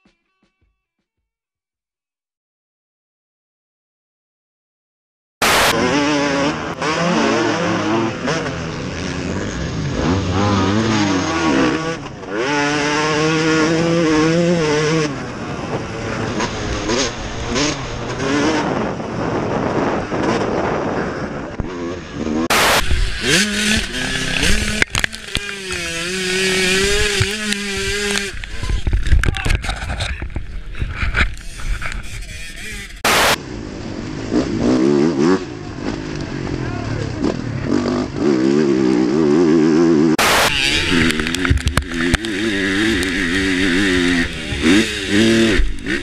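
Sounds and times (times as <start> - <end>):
rushing noise: 5.4 - 5.9, 22.4 - 28.7, 30.8 - 34.4, 40.2 - 46.0
dirt bike engines revving: 5.4 - 46.0.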